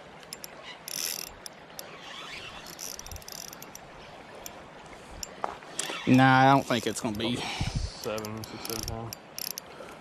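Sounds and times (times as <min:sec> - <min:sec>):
fishing reel clicking: 0:00.2 - 0:03.8, 0:08.0 - 0:09.7.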